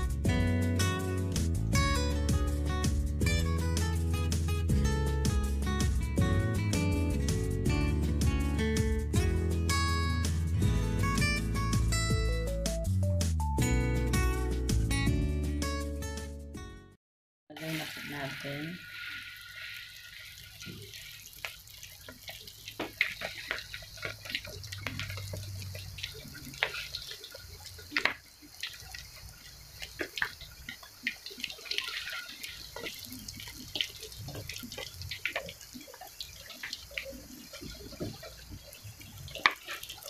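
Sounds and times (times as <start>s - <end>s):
oil crackling and popping: 17.6s - 40.0s.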